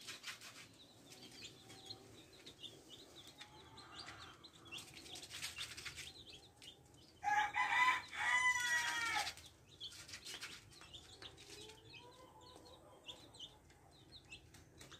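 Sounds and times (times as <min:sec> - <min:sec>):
chicks peeping: 0:00.0 - 0:14.9
loud chicken call: 0:07.2 - 0:09.4.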